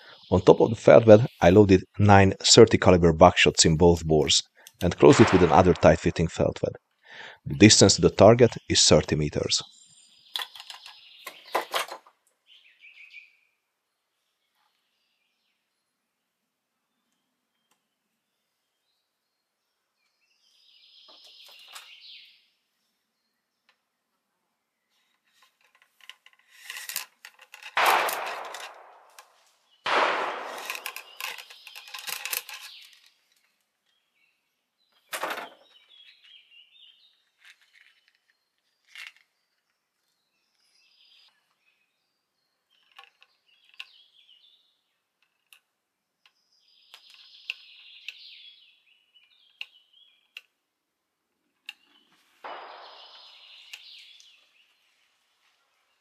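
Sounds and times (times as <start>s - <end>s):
birds chirping: 0.0s - 16.0s, 16.9s - 25.5s, 27.8s - 45.6s, 46.2s - 50.6s, 51.6s - 56.0s
rifle shots: 5.0s - 6.4s, 27.8s - 31.3s, 52.4s - 53.8s.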